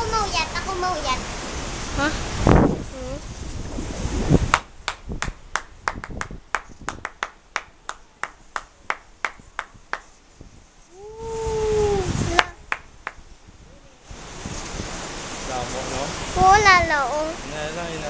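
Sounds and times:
rapid hand claps: 4.5 - 10.1, 12.3 - 13.2
person's long drawn-out call: 10.9 - 12.6.

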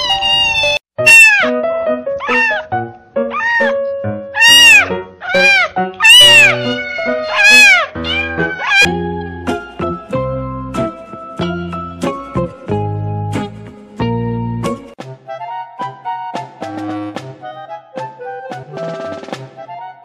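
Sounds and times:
kittens mewing: 0.0 - 1.6, 2.2 - 2.7, 3.3 - 3.8, 4.4 - 9.0.

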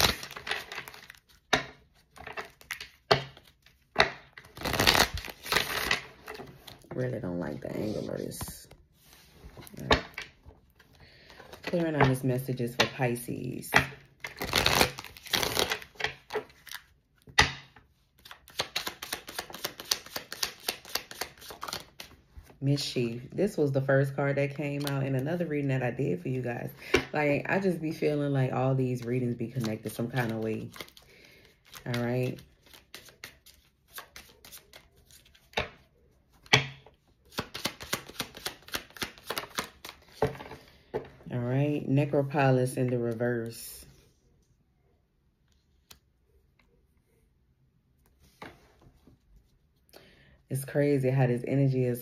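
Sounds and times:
cards being shuffled: 0.0 - 6.9, 14.2 - 17.3, 18.2 - 22.2, 29.5 - 36.6, 37.2 - 40.7.

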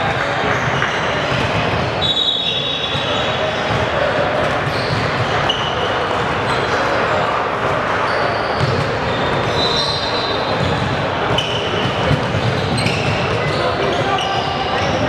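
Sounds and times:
sneakers squeaking: 0.1 - 15.0
basketball bouncing: 8.6 - 9.0, 10.6 - 11.0, 11.7 - 14.0.

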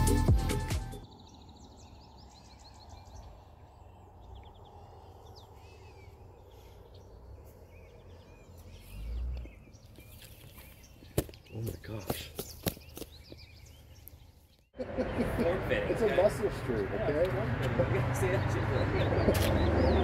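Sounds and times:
background music: 0.0 - 1.0
songbirds chirping and trilling: 0.0 - 20.0.

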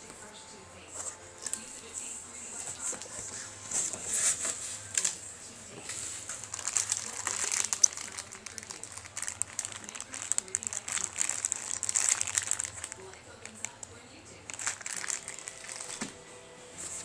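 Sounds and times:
plastic wrapping crinkling: 5.8 - 16.2.

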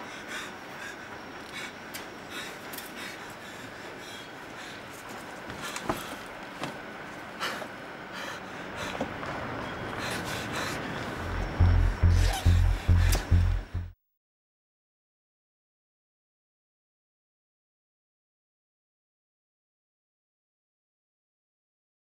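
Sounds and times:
man panting: 0.0 - 6.3, 7.4 - 13.8
steady background hiss: 0.0 - 13.8.

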